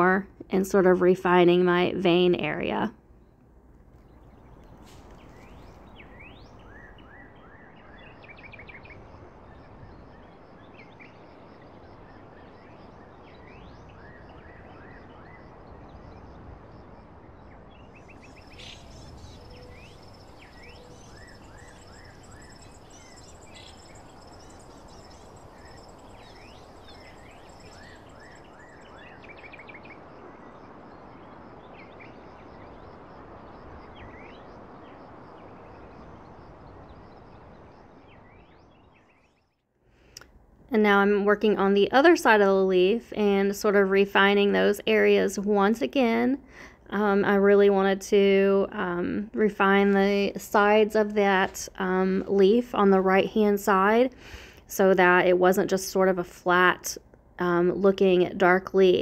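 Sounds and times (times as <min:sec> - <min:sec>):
steady background hiss: 0:00.0 - 0:59.0
birds chirping: 0:02.1 - 0:16.4, 0:17.5 - 0:33.0.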